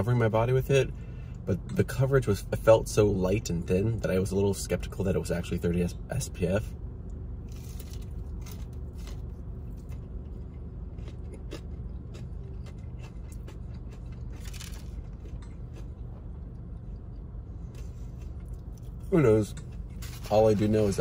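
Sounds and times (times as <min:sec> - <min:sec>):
low hum in car cabin: 0:00.0 - 0:21.0
person chewing crispy food: 0:07.4 - 0:20.6.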